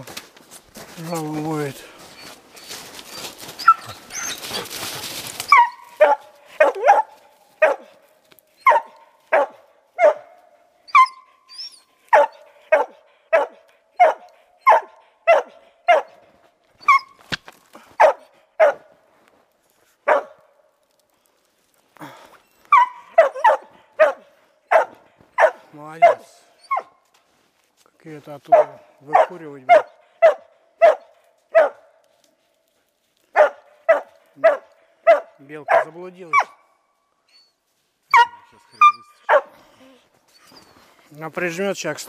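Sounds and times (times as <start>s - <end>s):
brush rustling: 0.0s - 9.4s
dog barking: 5.5s - 8.0s, 8.6s - 11.3s, 12.1s - 16.2s, 18.0s - 18.9s, 20.0s - 20.5s, 22.7s - 26.9s, 28.5s - 32.0s, 33.3s - 36.7s, 38.1s - 39.6s.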